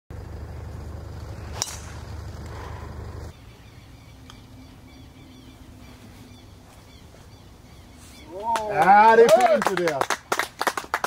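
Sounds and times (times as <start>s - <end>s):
low rumble: 0.1s - 5.8s
golf club hitting ball: 1.4s - 2.8s.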